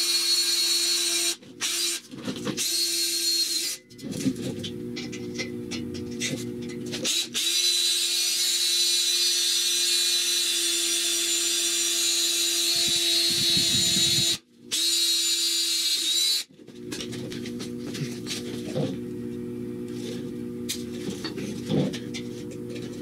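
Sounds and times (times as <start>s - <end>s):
cordless drill boring into steel: 0.0s - 2.0s, 7.1s - 16.5s.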